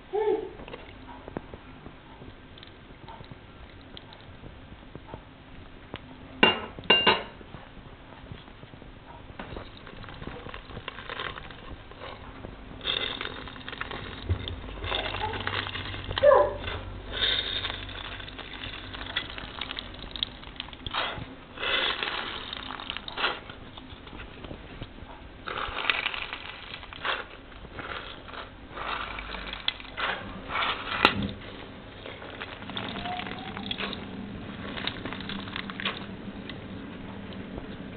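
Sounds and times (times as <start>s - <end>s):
juice dripping: 9.2s - 37.9s
fruit seeds crushing wetly: 9.5s - 12.2s, 12.8s - 24.6s, 25.4s - 36.9s.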